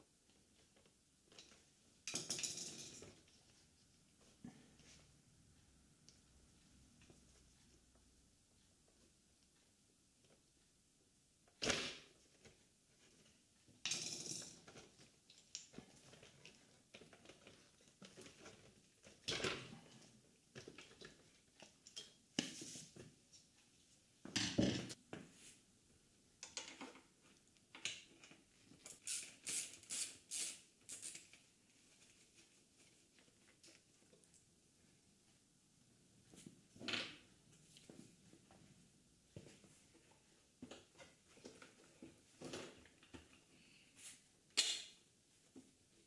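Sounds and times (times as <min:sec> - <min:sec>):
rustling of hands on parts: 0:14.6 - 0:46.0.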